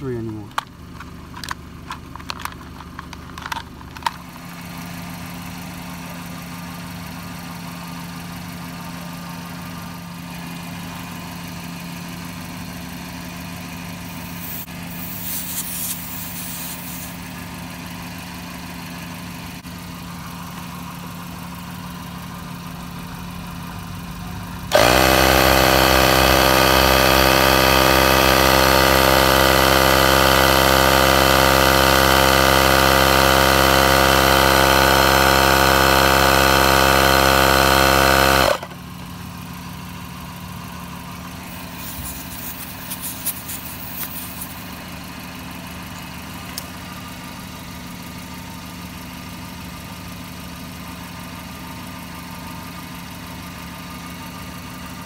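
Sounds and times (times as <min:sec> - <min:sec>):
car engine idling: 0:00.0 - 0:24.8, 0:38.5 - 0:55.0
brief hiss: 0:14.1 - 0:17.3, 0:41.5 - 0:44.8
tyre compressor droning: 0:24.6 - 0:38.7, 0:41.3 - 0:44.9.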